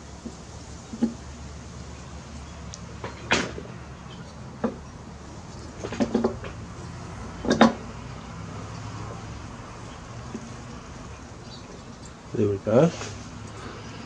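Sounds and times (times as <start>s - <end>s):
metal clunks and clinks: 7.4s - 7.8s.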